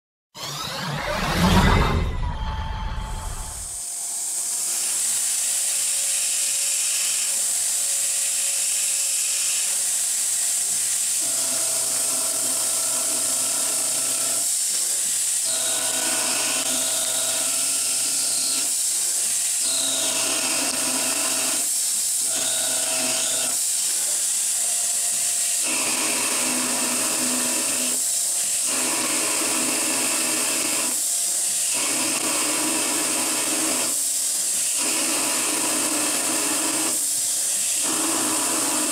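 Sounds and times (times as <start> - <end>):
machine hum: 0.4 - 3.8.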